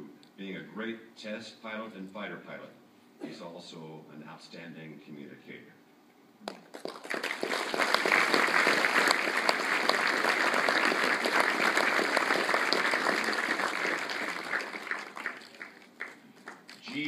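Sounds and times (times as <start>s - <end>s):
large audience applauding: 6.5s - 17.0s.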